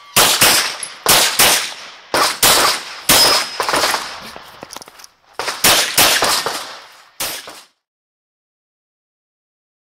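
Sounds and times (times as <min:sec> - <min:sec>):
pistol shots with echo: 0:00.2 - 0:04.2, 0:05.4 - 0:07.7.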